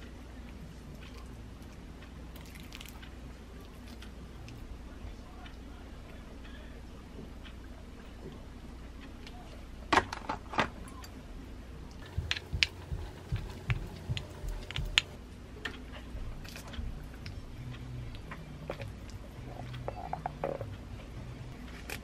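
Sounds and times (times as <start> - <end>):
sharp clicks: 12.0 - 15.2.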